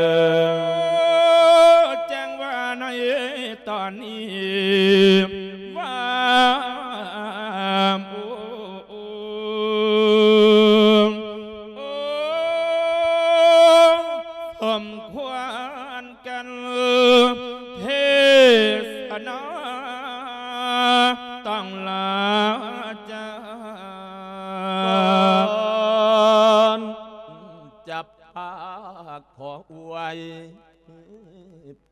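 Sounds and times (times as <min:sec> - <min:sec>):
monk chanting: 0:00.0 - 0:31.9.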